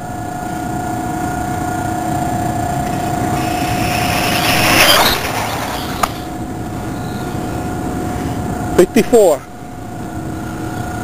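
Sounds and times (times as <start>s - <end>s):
steady high hum: 0.0s - 11.0s
rc car motor whine passing: 2.7s - 7.4s.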